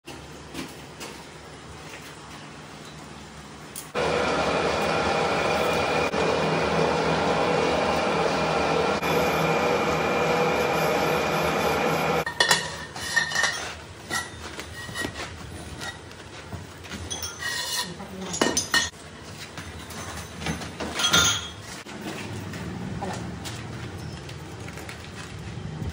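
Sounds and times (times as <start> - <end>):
metal lathe running: 4.0 - 12.3.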